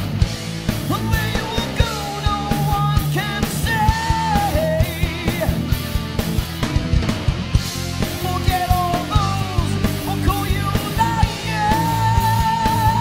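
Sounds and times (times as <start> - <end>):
bending lead guitar melody: 0.0 - 13.0
driving drums: 0.0 - 13.0
heavy metal band: 0.0 - 13.0.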